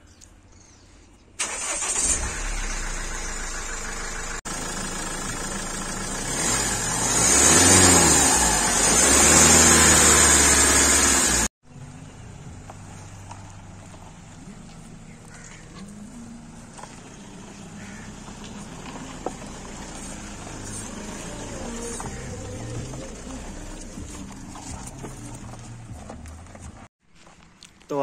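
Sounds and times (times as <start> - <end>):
engine revving: 1.4 - 11.5, 15.7 - 26.9
diesel engine starting: 1.4 - 26.9.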